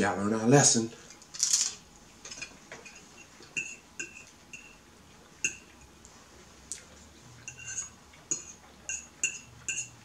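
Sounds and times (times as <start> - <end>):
fork clinking on ceramic plate: 7.5 - 10.0.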